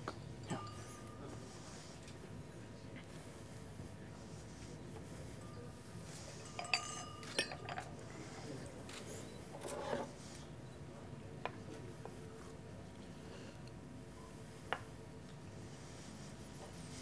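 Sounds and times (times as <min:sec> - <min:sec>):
low murmur of room noise: 0:00.0 - 0:17.0
glasses clinking together: 0:00.4 - 0:01.2, 0:06.3 - 0:08.0
tableware rattle: 0:06.3 - 0:08.0.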